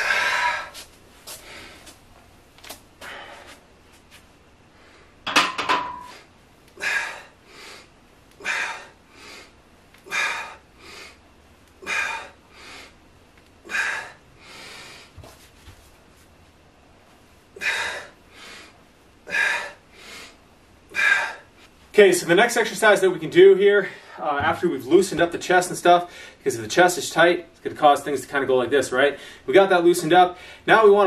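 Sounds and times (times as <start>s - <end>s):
man breathing hard: 0.0s - 2.0s, 3.0s - 3.7s, 6.0s - 13.0s, 13.6s - 15.4s, 17.5s - 21.8s, 26.0s - 26.4s, 29.2s - 29.5s, 30.4s - 30.7s.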